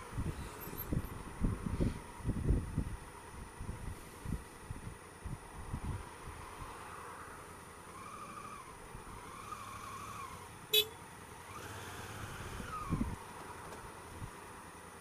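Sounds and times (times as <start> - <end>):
motorcycle engine revving: 7.9 - 13.2.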